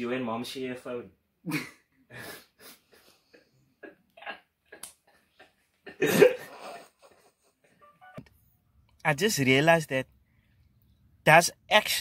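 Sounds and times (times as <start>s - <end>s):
young men laughing: 1.5s - 7.6s.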